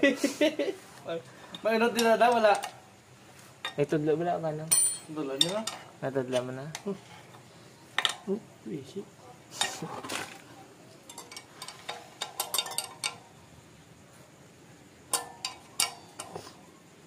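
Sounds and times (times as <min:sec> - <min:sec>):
metal tools clinking: 0:01.4 - 0:02.8, 0:03.6 - 0:03.9, 0:04.7 - 0:07.4, 0:11.0 - 0:13.4, 0:15.1 - 0:16.7.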